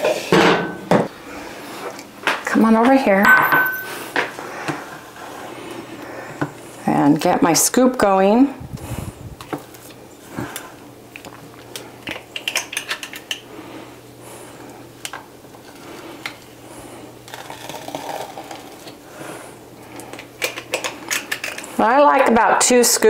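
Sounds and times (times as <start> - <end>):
scoops dropped into bowl: 3.2 - 4.0.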